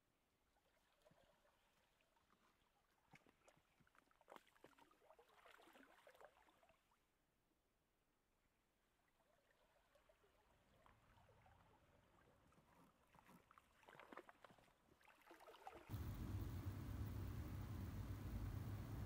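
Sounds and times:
faint crackles: 15.9s - 19.0s
steady low rumble: 15.9s - 19.0s.

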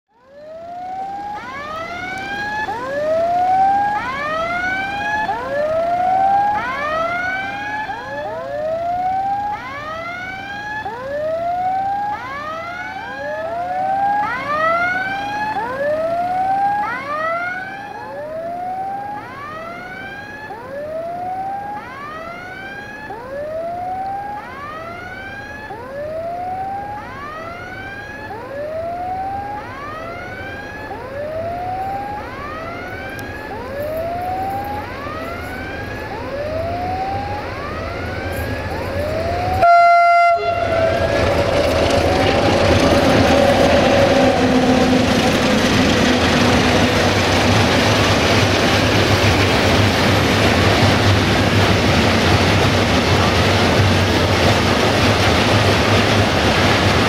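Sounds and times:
level crossing warning tones: 0.2s - 57.0s.

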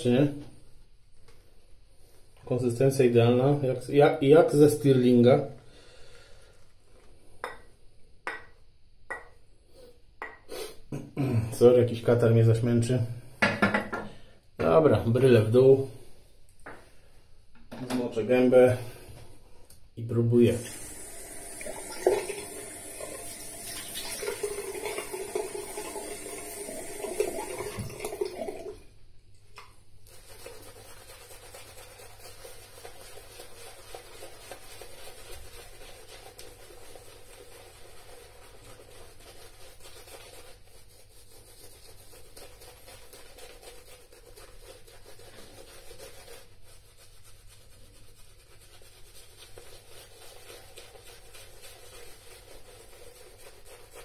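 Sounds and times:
tap water running into sink: 20.5s - 28.8s
shaving brush swishing: 20.6s - 28.5s, 30.0s - 54.0s.

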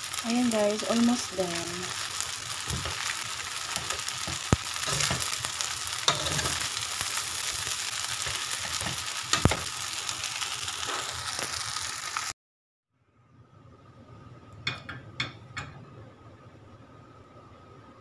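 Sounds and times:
noodles sizzling in a wok: 0.0s - 12.4s
utensils clinking against pan: 3.7s - 5.4s, 6.0s - 6.8s, 8.2s - 9.7s.

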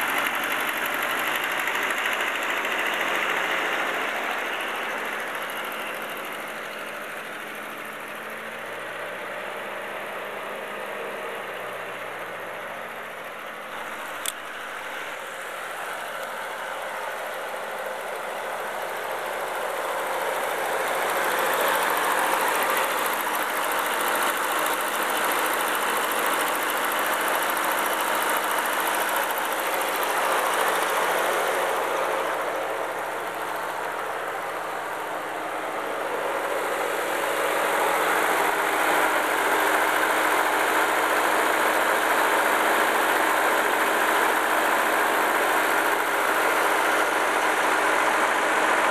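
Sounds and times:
tractor engine idling: 0.0s - 48.9s
sharp click: 14.2s - 14.4s.

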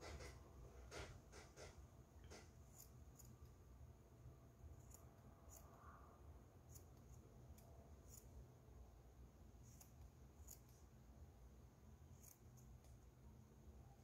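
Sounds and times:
scissors snipping cloth: 2.3s - 3.4s, 9.7s - 10.8s, 12.2s - 12.9s.

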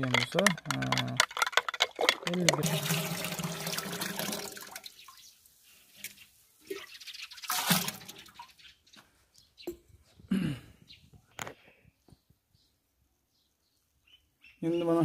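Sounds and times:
liquid pouring into water: 0.1s - 5.2s, 6.6s - 8.5s.

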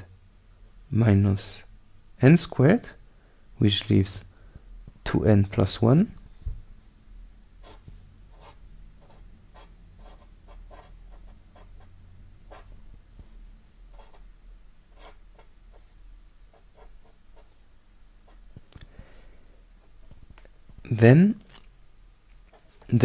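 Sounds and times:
faint low hum: 0.0s - 23.0s
marker pen scratching: 7.6s - 11.9s, 12.5s - 12.7s, 13.9s - 14.2s, 15.0s - 15.9s, 16.5s - 17.5s.

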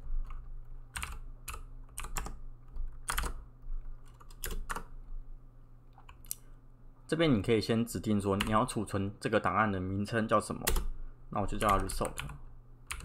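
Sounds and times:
faint low hum: 0.0s - 13.0s
typing on a computer keyboard: 0.2s - 3.4s, 4.0s - 4.9s, 10.7s - 10.9s, 11.6s - 13.0s.

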